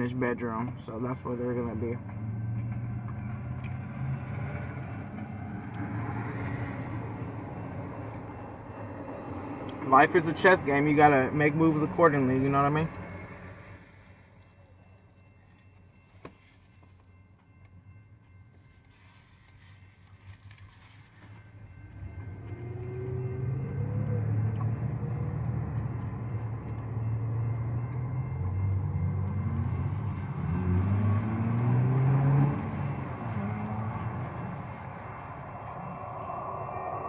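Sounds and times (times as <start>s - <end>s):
engine revving: 21.9s - 37.0s.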